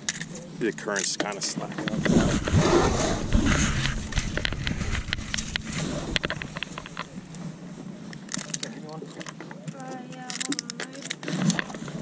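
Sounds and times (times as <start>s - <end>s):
low rumble with thumps: 1.8s - 8.0s.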